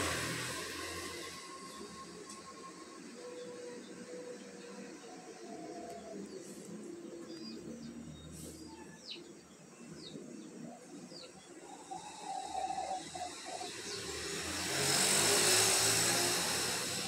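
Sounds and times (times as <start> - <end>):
broad rushing noise: 0.0 - 2.8, 11.7 - 17.0.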